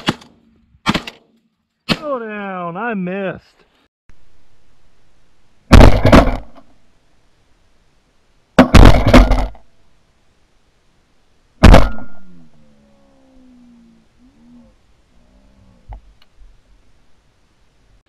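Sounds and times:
shotgun blasts: 0.0s - 1.2s, 5.7s - 6.6s, 8.6s - 9.6s, 11.6s - 12.3s.

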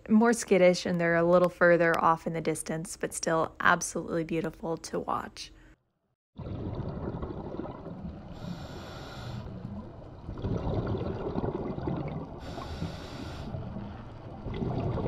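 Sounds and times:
exhaled bubbles rumbling: 6.4s - 15.0s
regulator inhalation hiss: 8.4s - 9.6s, 12.4s - 13.6s.

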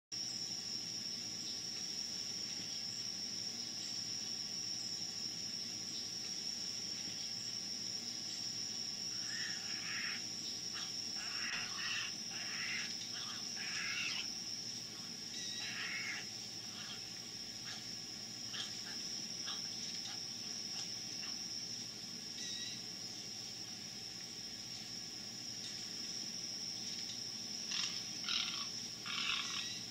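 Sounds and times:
high-pitched insect drone: 0.2s - 29.9s
short animal calls: 9.2s - 10.2s, 10.8s - 14.3s, 15.6s - 17.0s.

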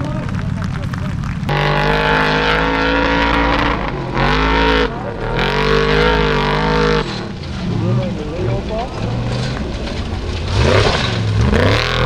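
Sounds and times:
second buggy engine revving: 0.0s - 12.0s
buggy engine revving hard: 1.4s - 12.0s.

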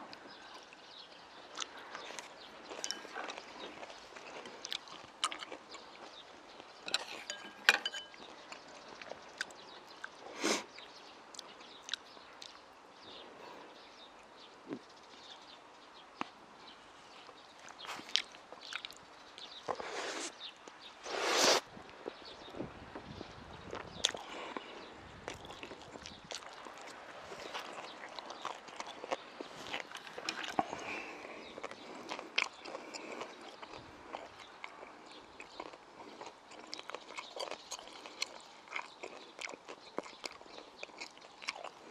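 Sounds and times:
chewing and lip-smacking: 0.1s - 12.6s, 17.2s - 19.8s, 23.7s - 41.9s
slurping in a mouthful: 19.7s - 20.4s, 21.0s - 21.7s.

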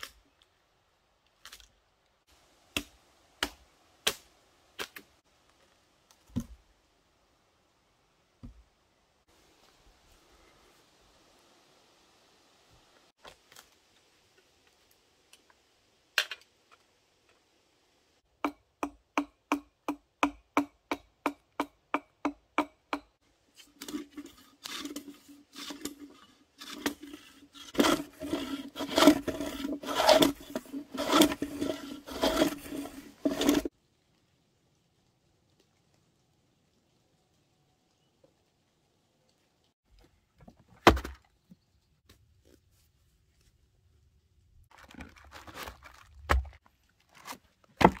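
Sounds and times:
hand plane scraping wood: 23.8s - 33.7s.

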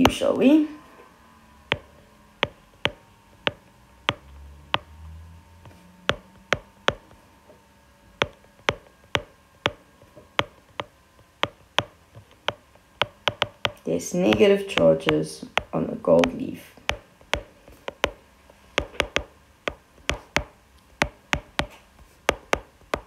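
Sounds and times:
stylus clicking on glass screen: 1.7s - 4.9s, 6.1s - 7.2s, 10.4s - 18.2s, 18.8s - 23.0s.

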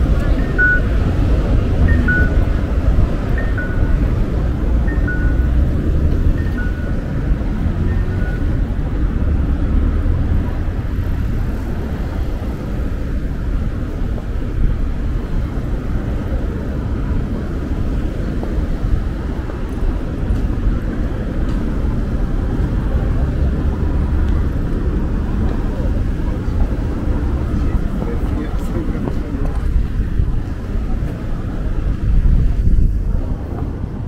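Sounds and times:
low rumble of road traffic: 0.0s - 34.0s
two-note electronic beeps: 0.3s - 1.0s, 1.8s - 2.5s, 3.4s - 4.1s, 4.8s - 5.7s, 6.3s - 7.2s, 7.8s - 8.6s.

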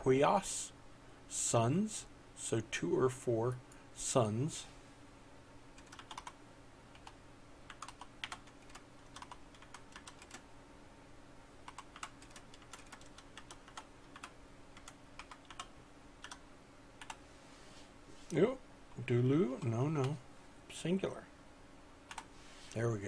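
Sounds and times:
faint hum: 0.0s - 23.0s
keyboard typing: 5.8s - 10.4s, 11.6s - 16.4s, 17.0s - 17.2s, 22.1s - 22.3s.

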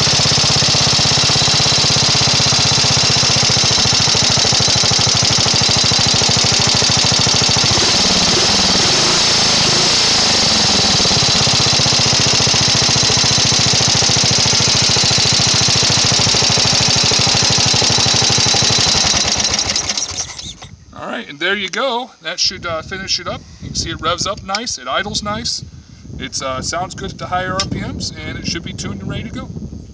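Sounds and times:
lawn tractor engine running: 0.0s - 20.7s.

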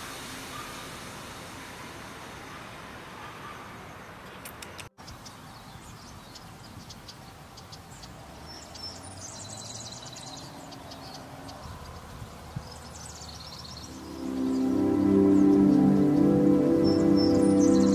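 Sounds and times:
steady hiss: 0.0s - 3.2s
birds chirping: 1.6s - 17.9s.

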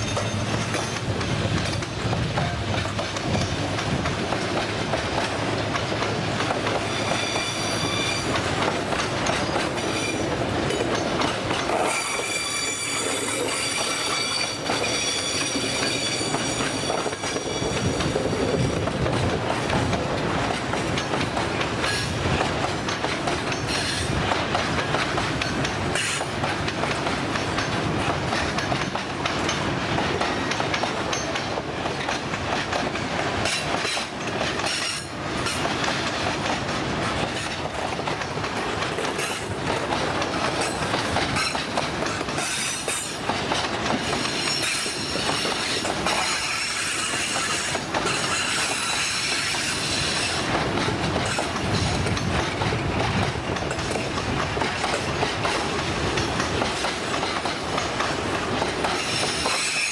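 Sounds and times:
train wagons rolling: 0.0s - 59.9s
wheels clacking on rails: 0.0s - 59.9s
high-pitched wheel squeal: 6.8s - 8.4s, 11.8s - 18.4s.

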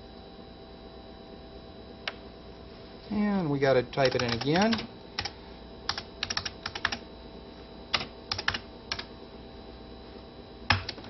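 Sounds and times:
typing on computer keyboard: 4.0s - 5.3s, 5.9s - 7.0s, 7.9s - 9.1s.

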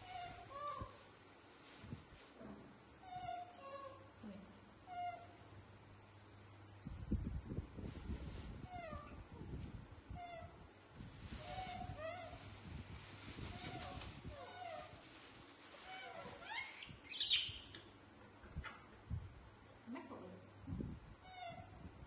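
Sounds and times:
baby monkeys cooing and squealing: 3.1s - 4.0s, 11.4s - 12.5s, 15.8s - 17.8s.

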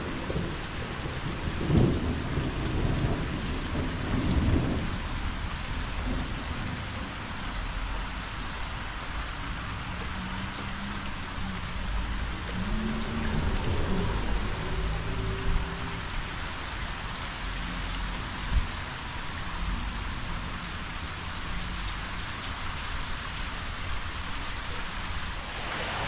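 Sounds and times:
heavy rain on water: 0.0s - 26.0s
low rumble: 25.3s - 26.0s.

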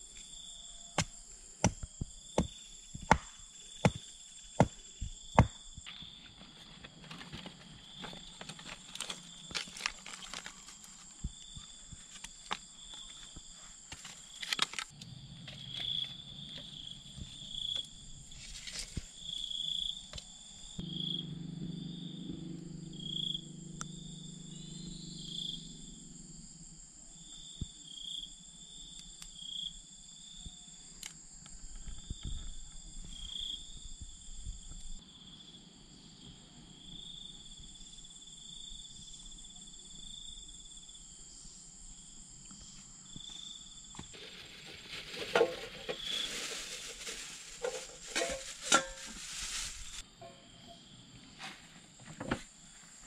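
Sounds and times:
insects chirring: 0.0s - 53.0s
dry bamboo pieces clacking: 7.0s - 11.2s, 12.0s - 14.9s, 44.2s - 50.0s.

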